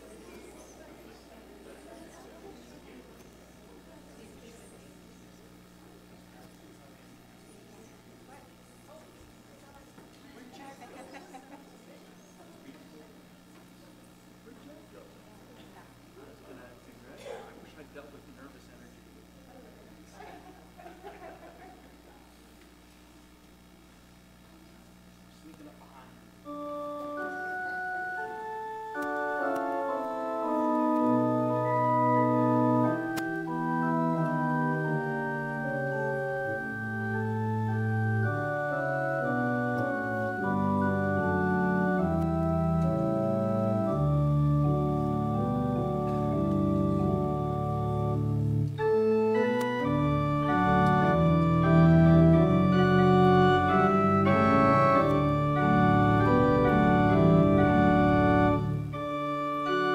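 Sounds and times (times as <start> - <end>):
electronic organ chords: 0.0 - 9.8, 26.2 - 59.9.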